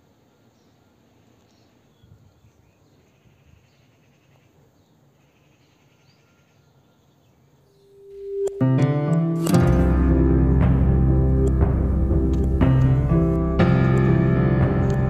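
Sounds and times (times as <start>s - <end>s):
faint background noise: 0.0s - 15.0s
soft chirps: 7.6s - 9.3s
held tone: 7.8s - 15.0s
music: 7.9s - 15.0s.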